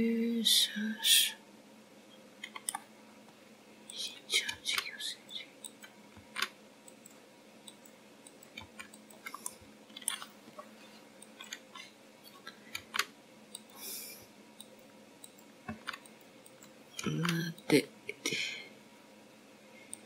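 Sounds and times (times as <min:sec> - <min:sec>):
soft hiss: 0:00.0 - 0:08.4
low steady hum: 0:00.0 - 0:20.0
mouse and keyboard clicks: 0:02.4 - 0:02.8, 0:05.6 - 0:10.3, 0:11.2 - 0:13.8, 0:14.6 - 0:17.8.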